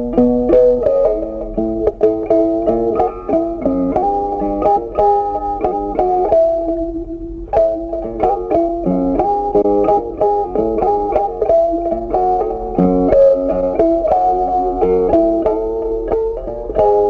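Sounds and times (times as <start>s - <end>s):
plucked guitar melody and chords: 0.0s - 17.0s.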